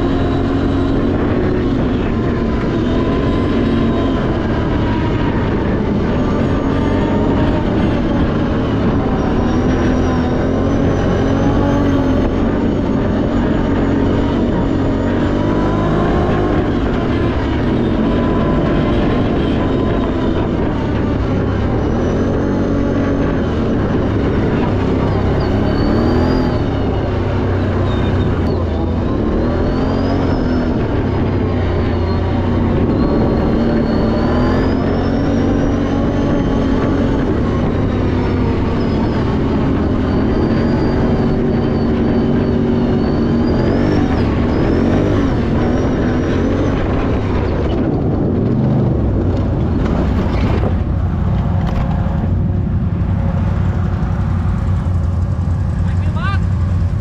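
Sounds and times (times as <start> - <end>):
high whine: 0.0 - 57.0
vehicle engine running under load: 0.0 - 57.0.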